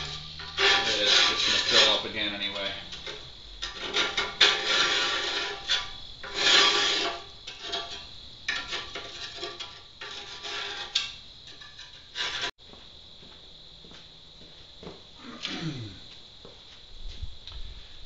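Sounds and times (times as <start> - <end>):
scraper scraping metal grill hood: 0.0 - 12.5.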